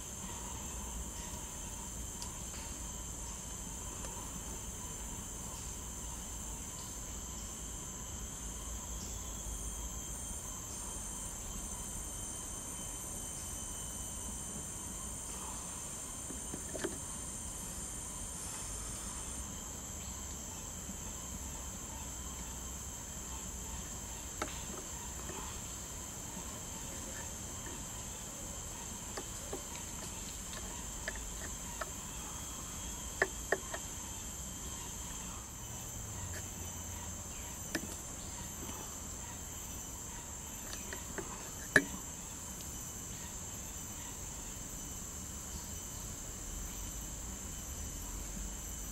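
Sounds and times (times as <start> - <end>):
insects shrill drone: 0.0 - 48.9.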